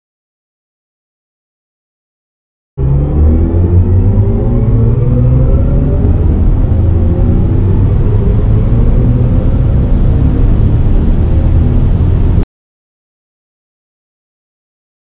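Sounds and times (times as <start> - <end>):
electric motor whine rising: 2.8 - 12.4
road and wind rumble: 2.8 - 12.4.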